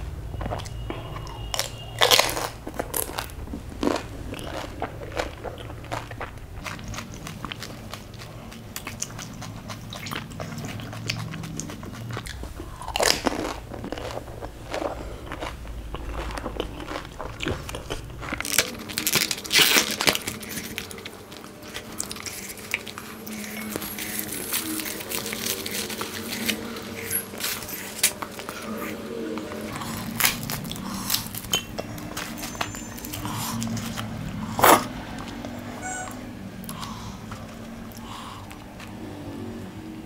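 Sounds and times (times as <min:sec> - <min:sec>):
wet chewing: 0:00.4 - 0:39.0
crisp shell crunching when bitten: 0:00.6 - 0:08.2, 0:10.9 - 0:28.6.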